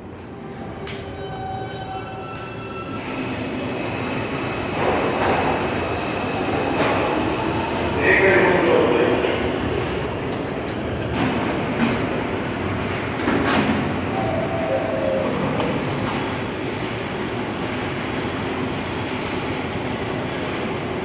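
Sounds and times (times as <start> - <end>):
subway train rumbling on rails: 0.0 - 21.0.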